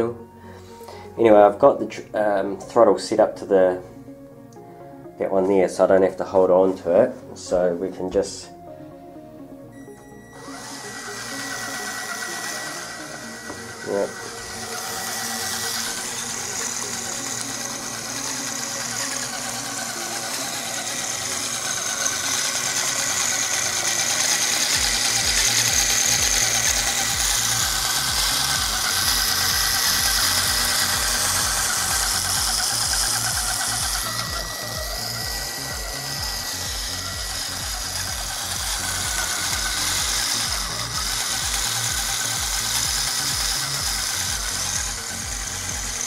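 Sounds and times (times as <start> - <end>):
electric motor and gears whirring: 9.7 - 46.0
high whine: 9.7 - 46.0
low rhythmic throb: 9.7 - 46.0.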